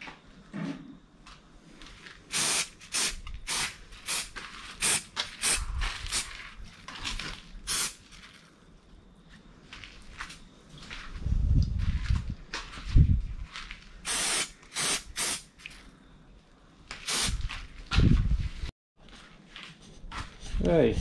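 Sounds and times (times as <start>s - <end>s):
aerosol can spraying bursts: 2.3s - 6.3s, 7.7s - 8.0s, 14.1s - 15.5s, 17.0s - 17.4s.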